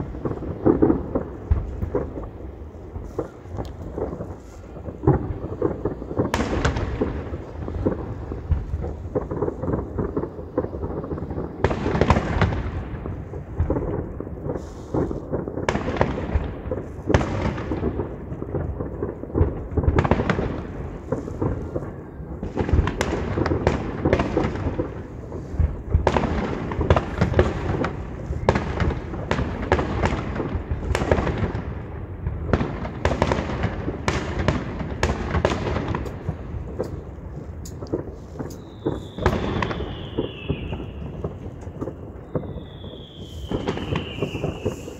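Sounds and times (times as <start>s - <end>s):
sharp firework cracks: 0.0s - 44.9s
firework shells bursting: 32.6s - 44.9s.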